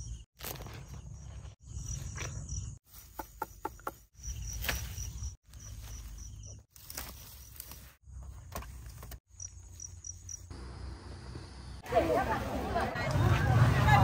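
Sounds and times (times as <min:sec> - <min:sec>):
insects chirping in a pulsing trill: 0:01.0 - 0:07.6, 0:09.3 - 0:11.8.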